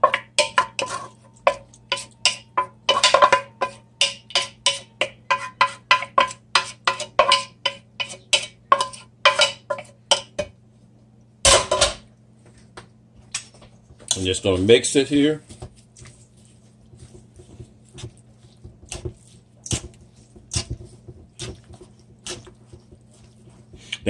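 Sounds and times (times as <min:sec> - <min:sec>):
skillet clatter: 0:00.0 - 0:10.5
wooden spoon tapping skillet: 0:00.0 - 0:10.6, 0:16.9 - 0:23.9.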